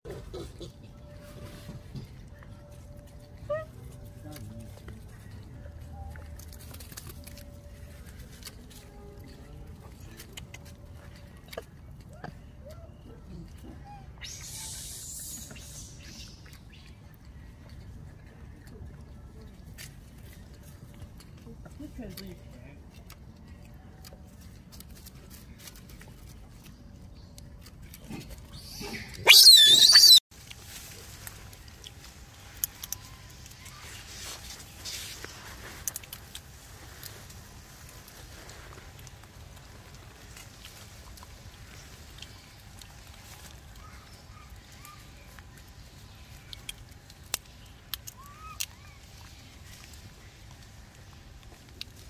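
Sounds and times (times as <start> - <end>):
monkey squealing: 28.6 - 30.2
peanut shells cracking: 46.2 - 52.0.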